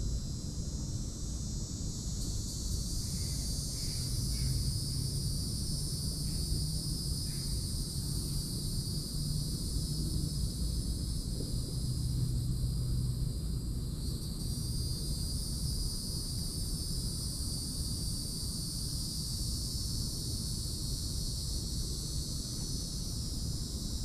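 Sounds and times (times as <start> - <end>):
low steady rumble: 0.0 - 18.5
insect chorus drone: 0.0 - 24.0.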